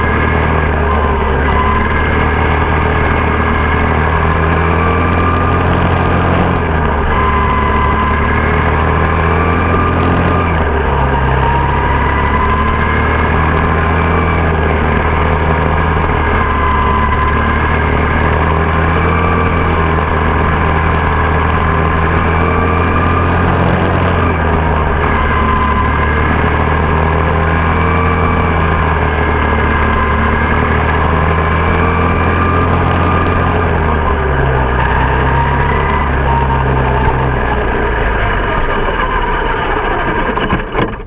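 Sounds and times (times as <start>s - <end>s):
race car engine running: 0.0s - 41.0s.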